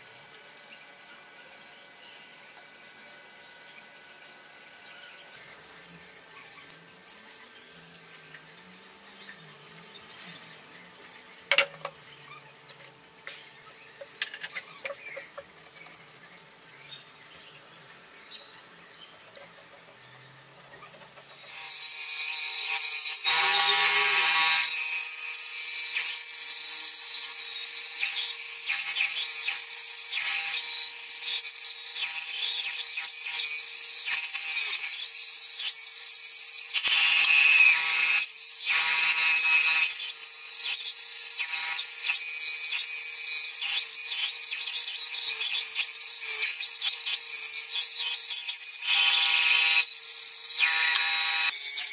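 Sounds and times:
band saw whirring: 19.1 - 51.9.

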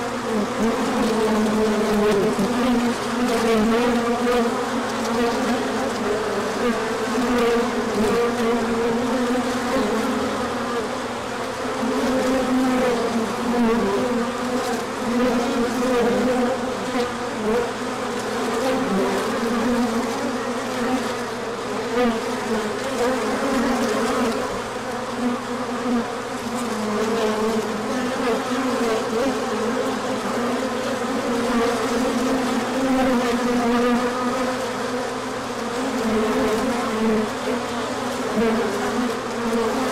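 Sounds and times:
bees buzzing: 0.0 - 39.9.

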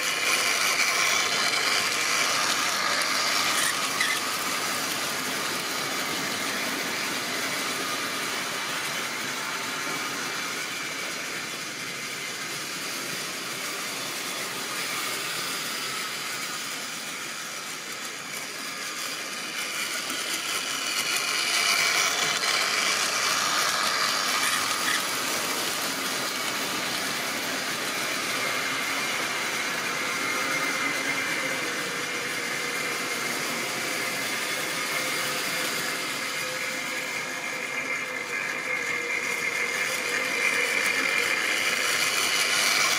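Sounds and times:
model train motor whirr: 0.0 - 42.9
wheels rumbling on rails: 0.0 - 42.9.

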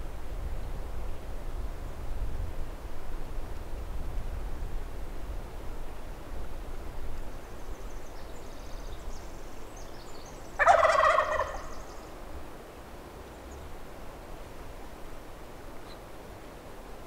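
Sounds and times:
turkey gobbling: 10.6 - 11.9.

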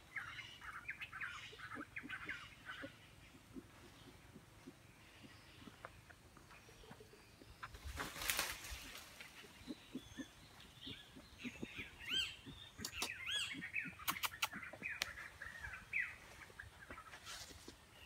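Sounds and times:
birds chirping: 0.0 - 18.0
sharp clicks: 12.8 - 13.3, 14.0 - 15.2.

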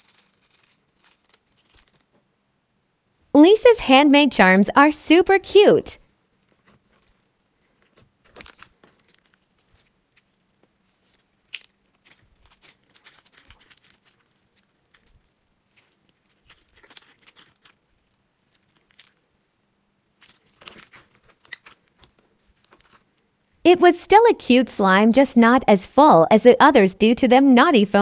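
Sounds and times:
slime crackling and tearing: 0.0 - 2.1, 6.5 - 19.4, 20.0 - 23.6.

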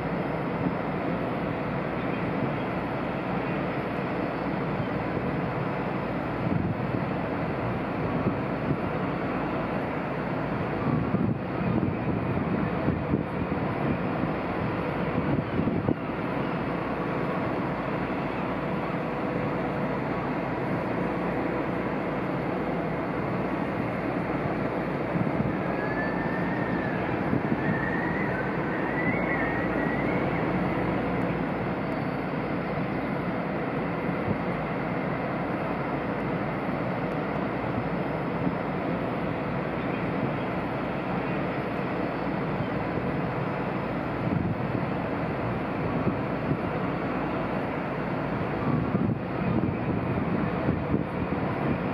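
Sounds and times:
ship machinery rumble: 0.0 - 51.9
faint warbling whistle: 25.6 - 30.7.

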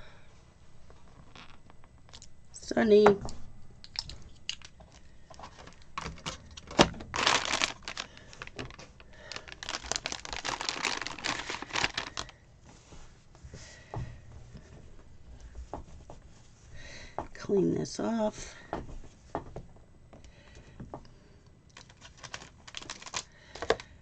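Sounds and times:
plastic packet crinkling: 3.8 - 12.4, 21.7 - 23.9.

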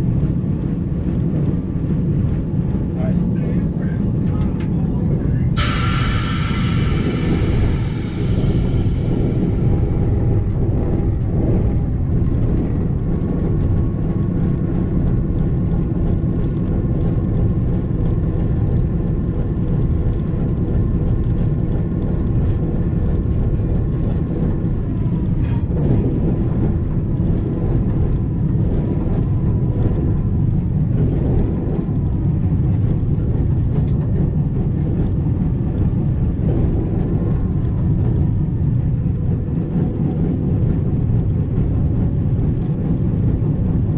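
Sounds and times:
diesel locomotive rumbling: 0.0 - 43.9
faint steady whine: 5.6 - 10.8.

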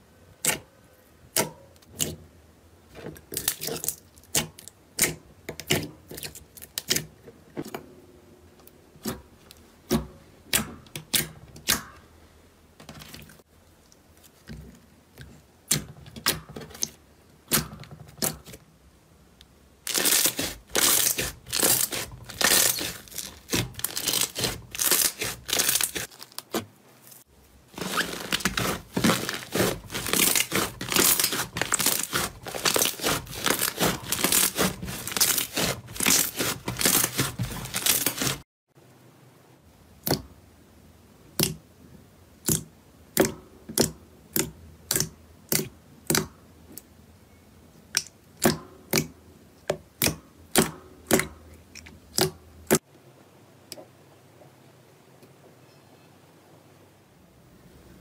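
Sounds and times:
slime crackling and crinkling: 3.2 - 7.2, 19.8 - 38.4
slime clicking and popping: 41.4 - 41.6, 42.4 - 46.3, 52.1 - 52.8.

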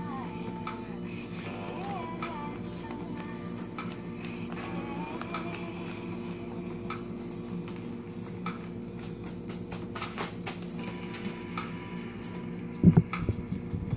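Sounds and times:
steady low hum: 0.0 - 13.9
banknotes rustling: 1.3 - 11.4.

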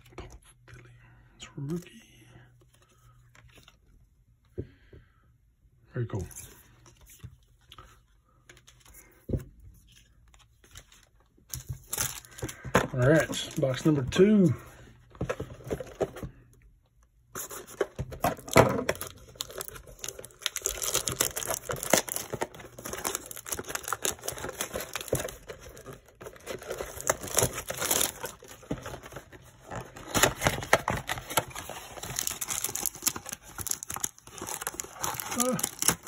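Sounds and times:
plastic wrap crinkling and tearing: 18.4 - 36.0.

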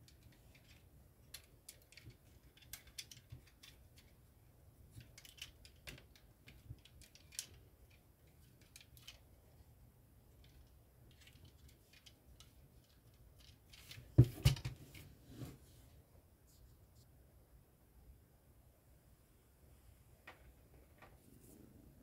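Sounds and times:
plastic pieces clicking and rattling: 0.0 - 4.3, 4.9 - 9.3, 10.3 - 14.7.

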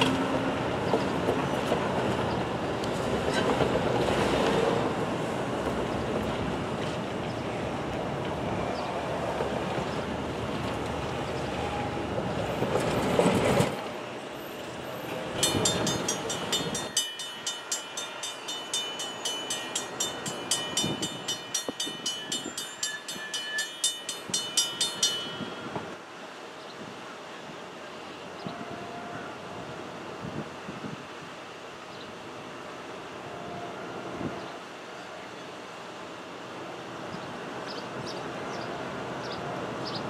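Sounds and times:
crossing warning bell ringing: 15.2 - 26.1.

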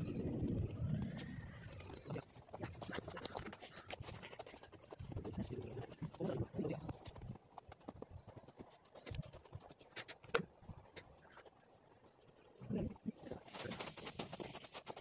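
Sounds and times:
small bird chirping: 0.0 - 3.5, 7.8 - 13.5.

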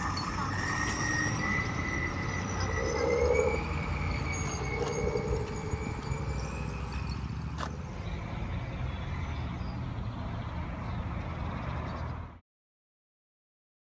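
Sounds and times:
low rumble: 0.0 - 10.8.

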